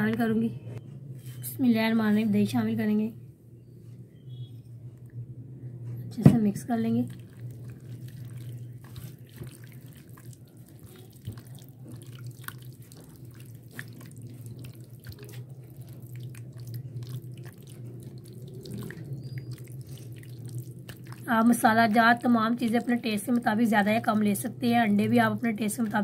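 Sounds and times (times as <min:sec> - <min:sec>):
steady low hum: 0:00.0 - 0:26.0
hands squelching wet marinade: 0:06.9 - 0:26.0.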